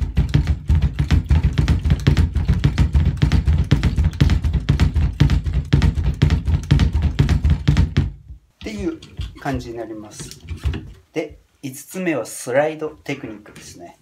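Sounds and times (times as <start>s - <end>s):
rapid kick drum strokes: 0.0s - 8.4s.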